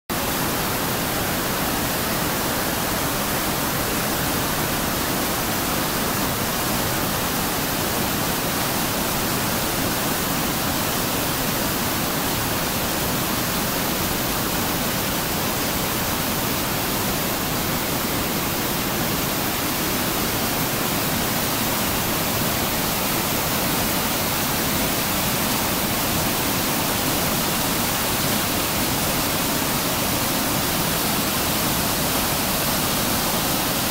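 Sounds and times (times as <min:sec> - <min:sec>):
water rushing over rocks: 0:00.1 - 0:33.9.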